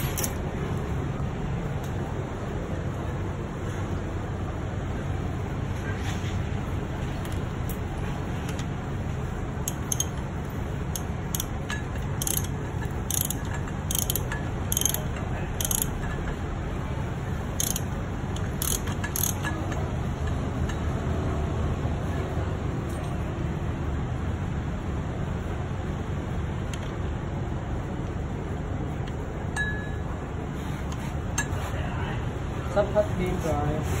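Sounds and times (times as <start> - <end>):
wrench clicking on metal: 0.0 - 0.4, 9.6 - 10.2, 10.8 - 16.3, 17.5 - 20.8.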